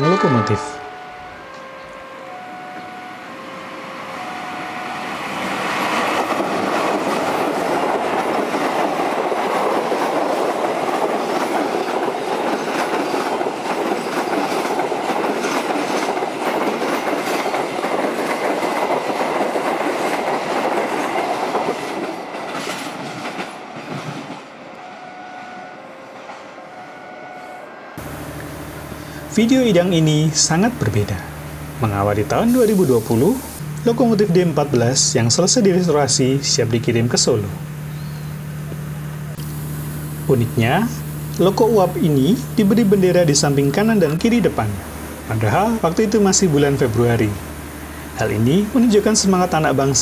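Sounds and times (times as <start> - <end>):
train rumbling past: 0.0 - 50.0
wheels clacking over rail joints: 5.3 - 24.6.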